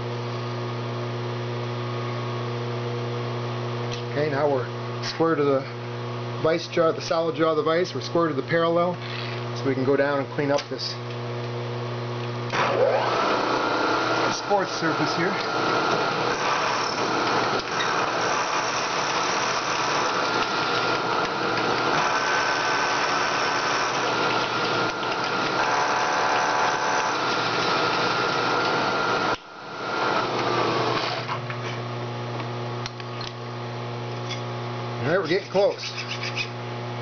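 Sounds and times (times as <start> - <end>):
milling machine humming: 12.4 - 31.6
end mill cutting metal: 12.5 - 31.5.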